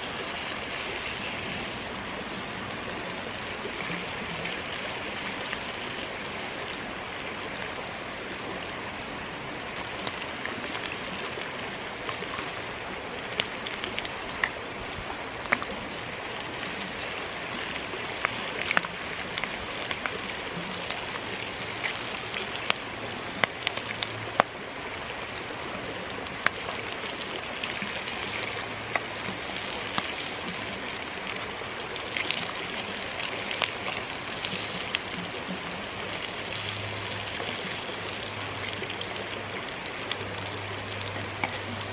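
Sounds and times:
creek flowing: 0.0 - 41.9
bacon sizzling in frying pan: 9.6 - 41.9.

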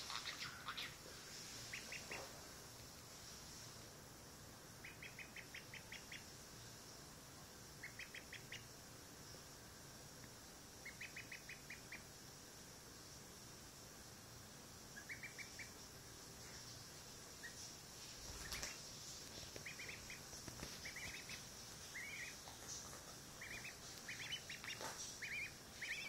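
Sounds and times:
duckling peeping: 0.0 - 2.4, 4.8 - 6.3, 7.8 - 8.7, 10.8 - 12.1, 15.0 - 15.9, 16.6 - 26.0.

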